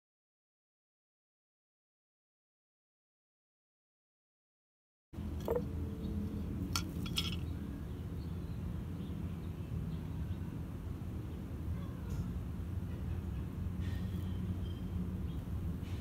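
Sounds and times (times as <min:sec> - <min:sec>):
low outdoor rumble: 0:05.2 - 0:16.0
glass jar clinking: 0:06.8 - 0:07.5.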